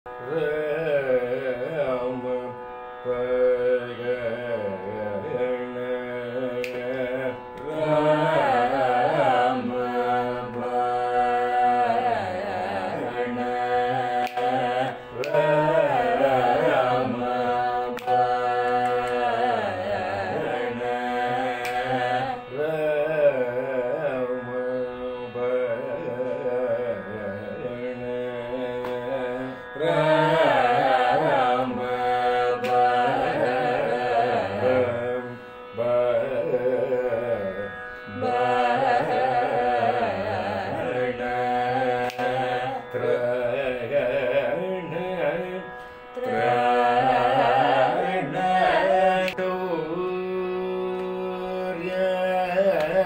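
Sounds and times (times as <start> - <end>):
person singing classical melody: 0.1 - 53.0.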